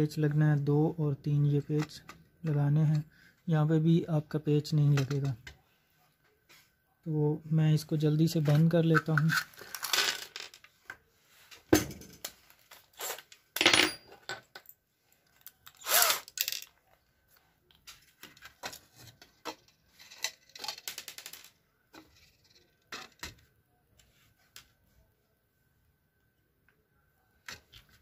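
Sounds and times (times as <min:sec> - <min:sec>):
screws and casing parts clinking: 0:17.8 - 0:23.2.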